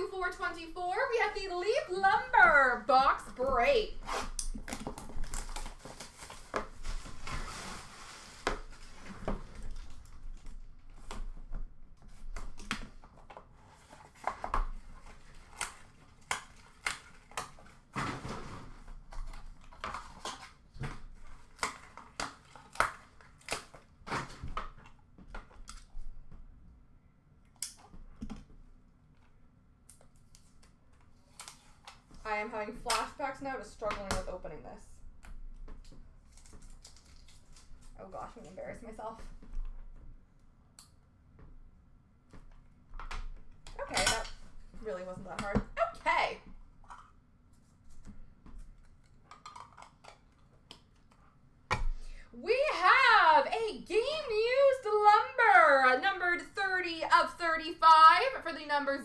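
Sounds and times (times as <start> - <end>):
cardboard rustling and tearing: 3.9 - 11.1, 36.2 - 38.1.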